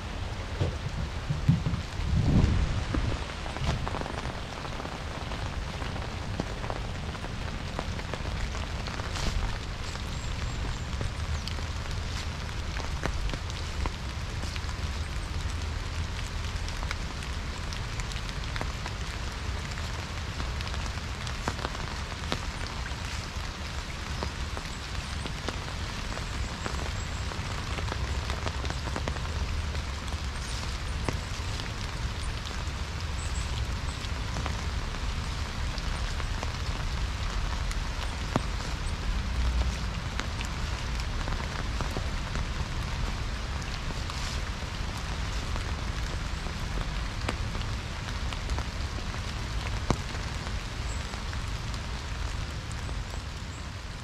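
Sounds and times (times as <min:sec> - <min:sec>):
low steady rumble: 0:00.0 - 0:06.3
steady rain falling: 0:00.0 - 0:54.0.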